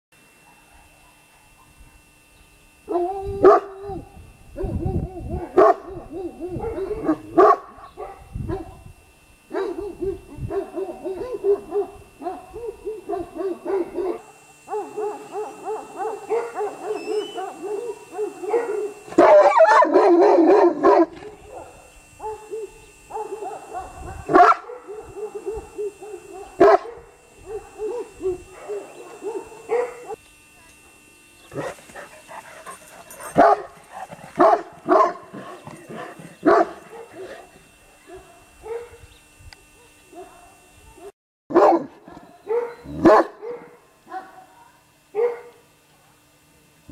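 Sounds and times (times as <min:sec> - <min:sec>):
dog barking: 0:00.4 - 0:02.0, 0:02.9 - 0:08.8, 0:09.5 - 0:30.2, 0:33.3 - 0:33.8, 0:34.4 - 0:35.6, 0:36.4 - 0:37.5, 0:38.1 - 0:39.0, 0:39.8 - 0:45.6
dog whining howls: 0:02.9 - 0:07.3, 0:15.1 - 0:19.9.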